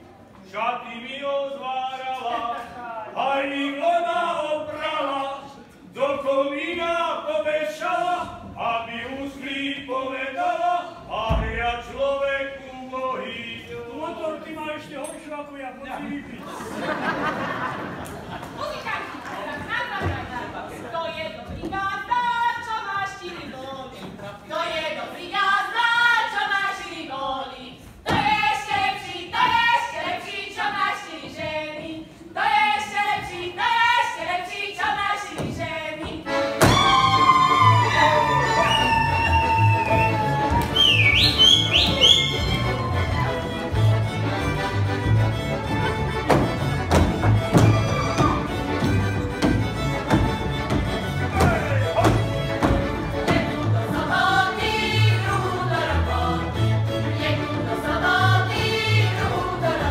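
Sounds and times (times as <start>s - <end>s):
women singing in unison: 24.6s - 37.3s, 53.2s - 59.9s.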